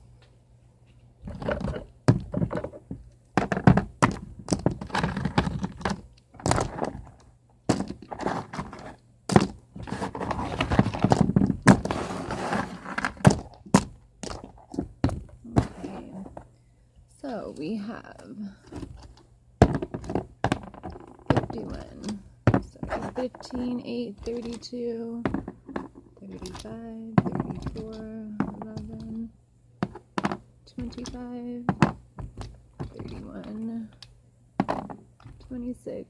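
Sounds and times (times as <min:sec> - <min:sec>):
rustling handling noise: 0:00.0 - 0:35.8
small stones clacking: 0:01.3 - 0:16.4, 0:18.8 - 0:35.6.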